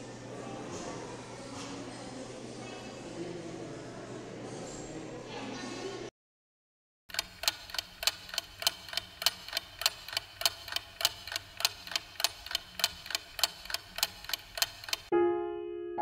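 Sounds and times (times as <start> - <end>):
rapid mechanical ticking: 7.1 - 15.1.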